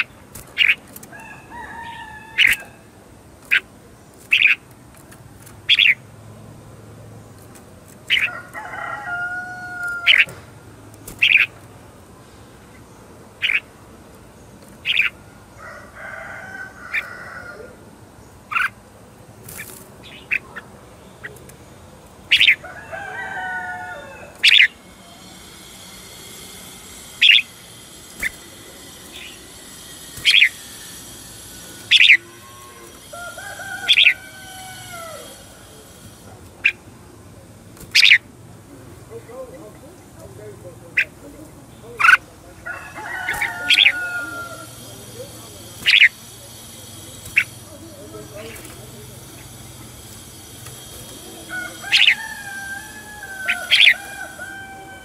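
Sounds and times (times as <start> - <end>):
steady high buzz: 17.7 - 55.0
bird song phrases: 18.1 - 22.7, 31.8 - 35.4, 51.1 - 54.4.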